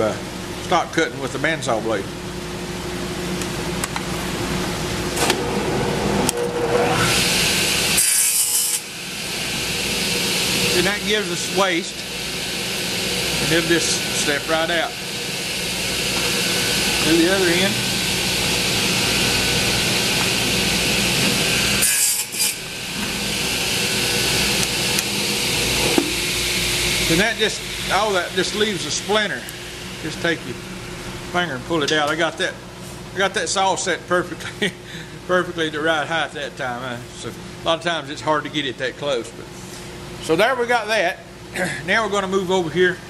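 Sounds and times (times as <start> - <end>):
radial arm saw running: 5.2 - 30.7
saw blade cutting wood: 6.3 - 8.9, 15.6 - 29.6.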